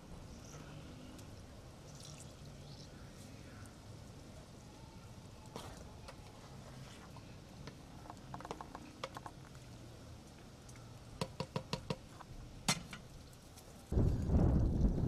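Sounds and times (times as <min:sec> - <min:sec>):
spoon tapping against pot: 0:11.2 - 0:12.0.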